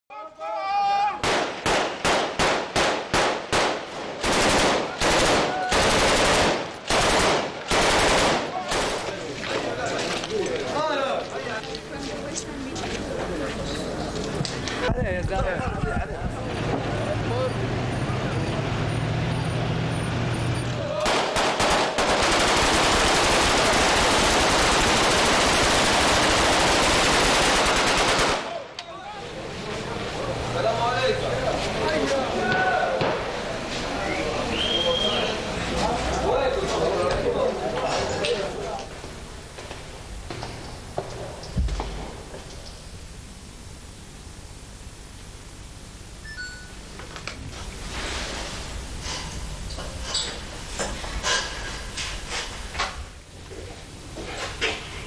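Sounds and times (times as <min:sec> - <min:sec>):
automatic gunfire bursts: 0:01.2 - 0:09.1, 0:21.0 - 0:28.6
rifle single shots: 0:01.2 - 0:09.2, 0:21.0 - 0:28.7.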